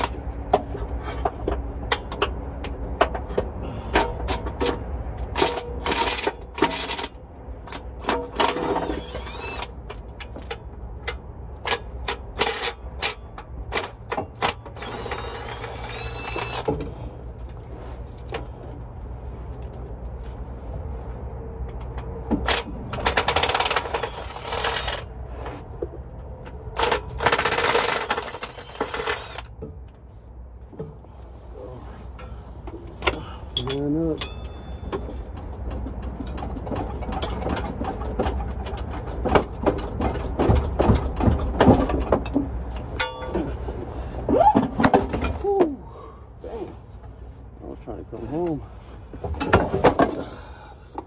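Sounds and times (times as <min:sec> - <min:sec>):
hand tools clicking and clinking: 0:21.8 - 0:25.1, 0:26.7 - 0:29.5, 0:33.0 - 0:40.2, 0:43.0 - 0:43.6.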